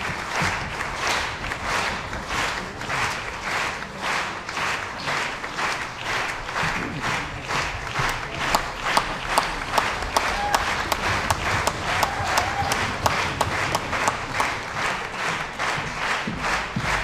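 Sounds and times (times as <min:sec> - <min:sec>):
audience applauding: 0:00.0 - 0:17.0
rhythmic clapping in unison: 0:00.0 - 0:17.0.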